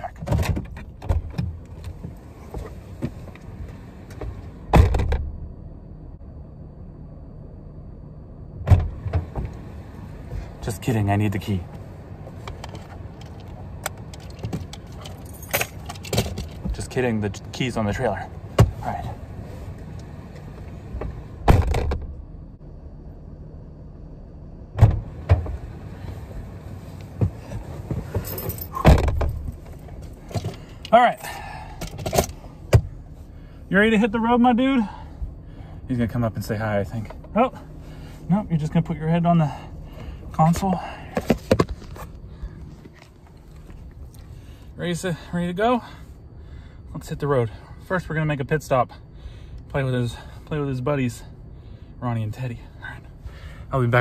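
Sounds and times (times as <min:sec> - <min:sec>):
low hum: 0:00.8 - 0:53.7
car door thump: 0:04.7 - 0:05.3, 0:08.6 - 0:09.5, 0:21.4 - 0:22.1, 0:24.8 - 0:25.6, 0:27.2 - 0:29.6
keys jangling: 0:14.1 - 0:16.6.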